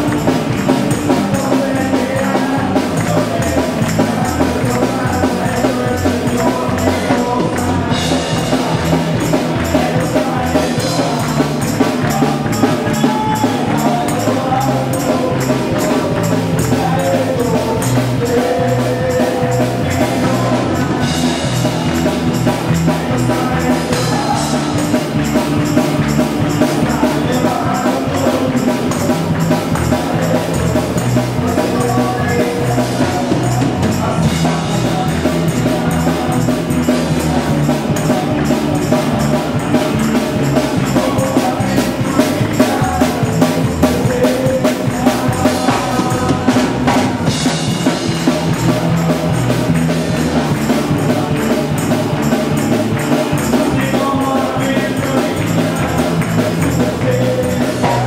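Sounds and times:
electric bass: 0:00.0 - 0:58.0
people singing along: 0:00.0 - 0:58.0
steady percussion beat: 0:00.0 - 0:58.0.

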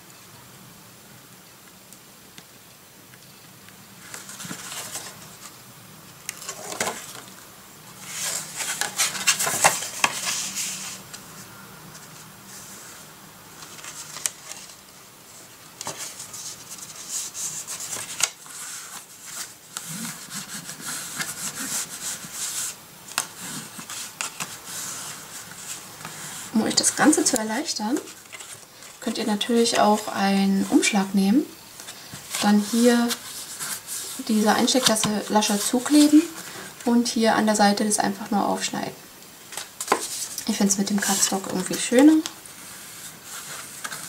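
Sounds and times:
bone folder scraping paper: 0:15.8 - 0:27.1.

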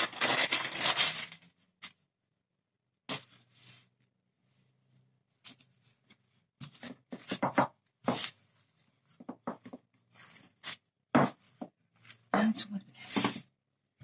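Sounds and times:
parchment paper crinkling: 0:00.0 - 0:02.1.

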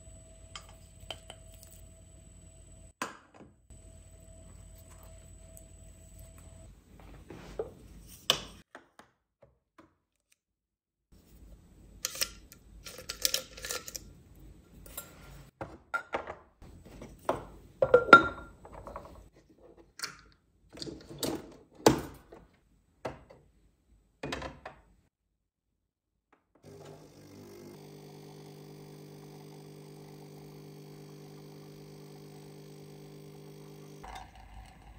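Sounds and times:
household objects knocking and clinking: 0:17.3 - 0:19.2.

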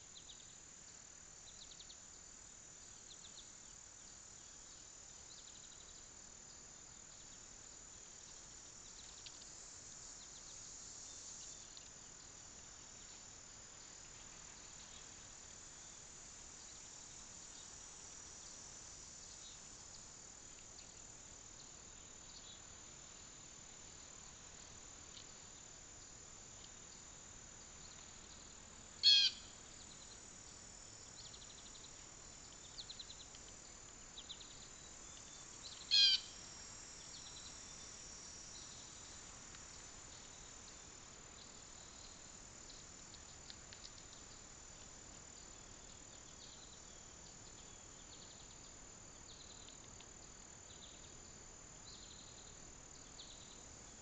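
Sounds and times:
insects chirring: 0:00.0 - 0:54.0
faint bird chirps: 0:27.6 - 0:30.2, 0:31.0 - 0:36.4
bird call: 0:29.0 - 0:29.5, 0:35.8 - 0:36.3.

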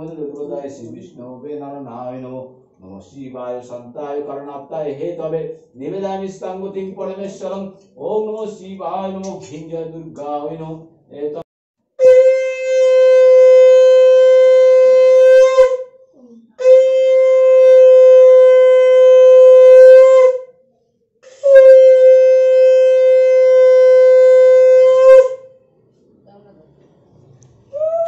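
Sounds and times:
conch shell blasts: 0:12.0 - 0:16.0, 0:16.6 - 0:20.5, 0:21.2 - 0:25.6.

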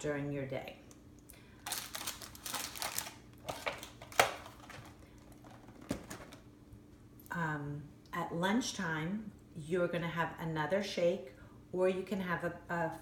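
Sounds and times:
cardboard box and wrapper rustling: 0:01.6 - 0:06.4.

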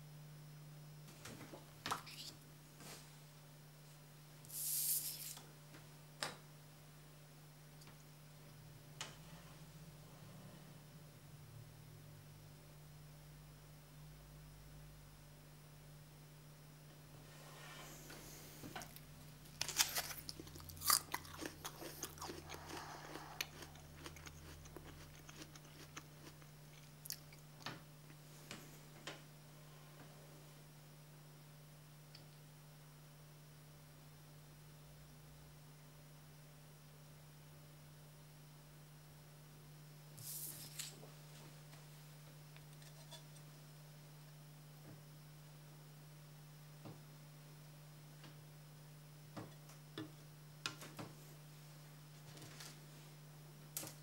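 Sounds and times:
chewing: 0:18.8 - 0:27.4
crunchy bite of pear: 0:18.9 - 0:27.4.

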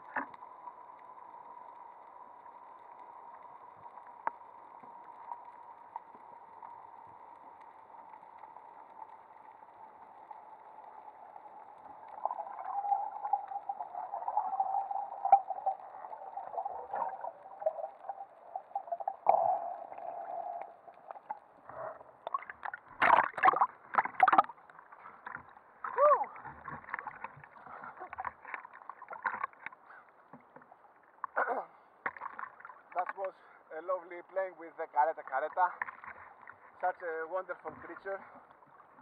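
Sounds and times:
water rushing and gurgling: 0:00.0 - 0:29.9
muffled underwater hiss: 0:00.0 - 0:39.0
water splashing: 0:03.9 - 0:29.9, 0:32.0 - 0:33.3
thin hum: 0:10.8 - 0:22.4.

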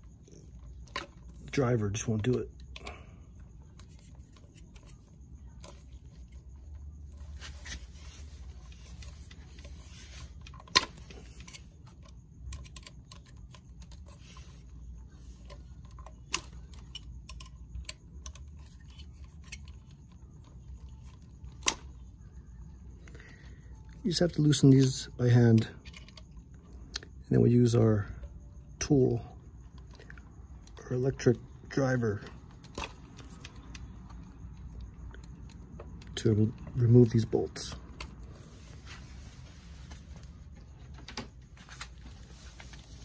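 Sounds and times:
low steady hum: 0:00.0 - 0:43.0.

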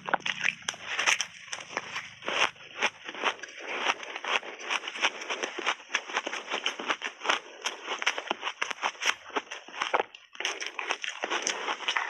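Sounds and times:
chewing crunchy ice: 0:00.0 - 0:12.0.

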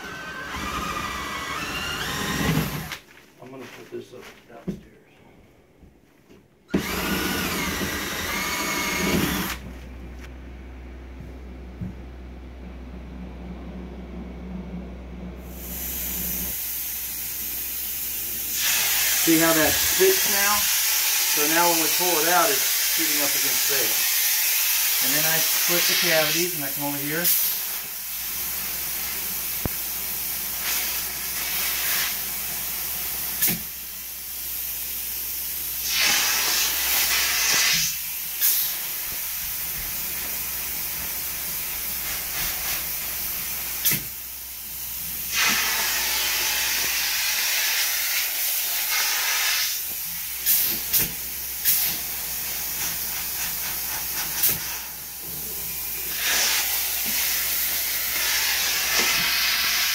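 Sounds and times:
spray foam gun hissing: 0:15.5 - 0:34.8, 0:35.6 - 0:59.9.

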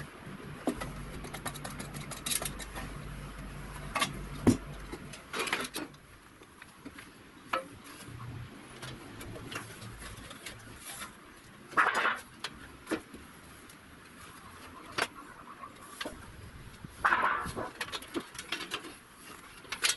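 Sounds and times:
metallic clicks and knocks: 0:00.6 - 0:03.1
metal clatter: 0:00.7 - 0:03.0.

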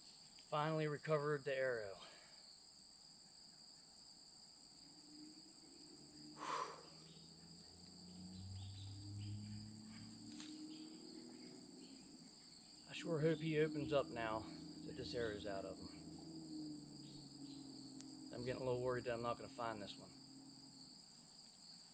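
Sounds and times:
crickets chirping: 0:00.0 - 0:21.9
rustle: 0:00.0 - 0:21.9
faint low drone: 0:04.8 - 0:21.2.

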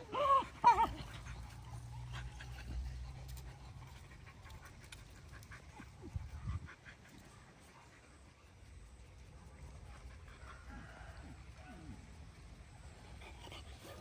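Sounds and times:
dog yelps: 0:00.0 - 0:01.4
dogs growling: 0:00.0 - 0:08.3, 0:13.0 - 0:14.0.

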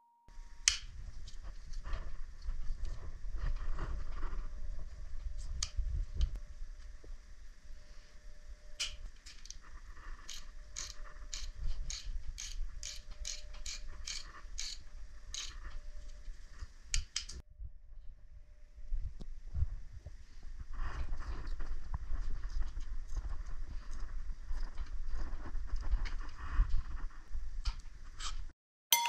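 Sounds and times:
ratchet wrench clicking: 0:10.3 - 0:14.8.

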